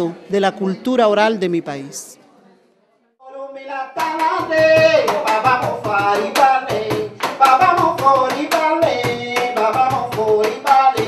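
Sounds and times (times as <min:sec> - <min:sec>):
hand percussion: 0:03.9 - 0:11.0.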